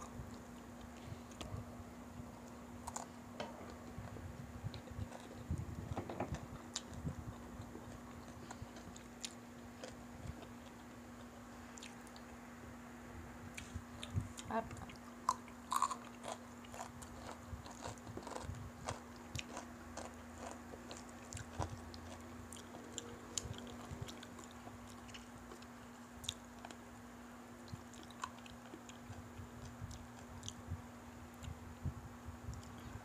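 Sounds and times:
faint steady hum: 0:00.0 - 0:33.0
chewing crunchy food: 0:02.4 - 0:12.4, 0:13.5 - 0:26.8, 0:27.6 - 0:30.6.

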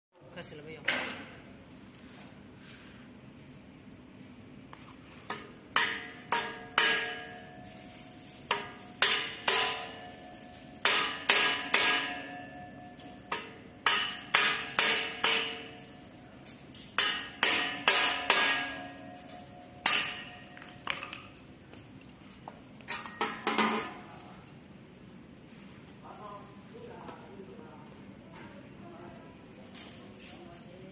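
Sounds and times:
hammer striking metal: 0:05.3 - 0:07.9, 0:08.5 - 0:16.1, 0:16.8 - 0:21.1.

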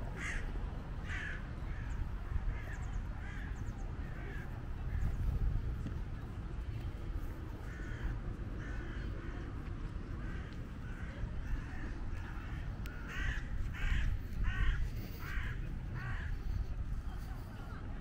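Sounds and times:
steady low rumble: 0:00.0 - 0:18.0
crow cawing: 0:00.2 - 0:04.5, 0:07.6 - 0:09.2, 0:10.2 - 0:16.6.

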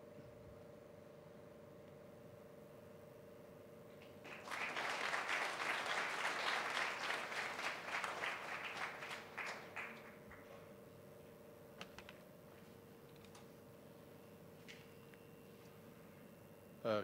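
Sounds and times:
audience applauding: 0:04.2 - 0:10.5.

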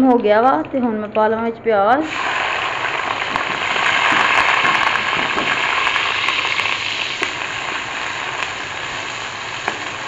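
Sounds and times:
onions sizzling in a pot: 0:02.0 - 0:10.0.

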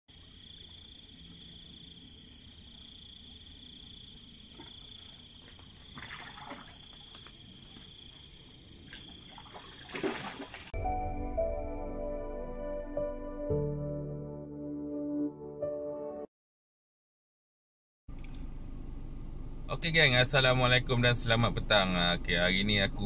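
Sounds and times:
night insects chirring: 0:00.1 - 0:10.7
rustling splashing in water: 0:05.4 - 0:08.1, 0:08.9 - 0:10.8.

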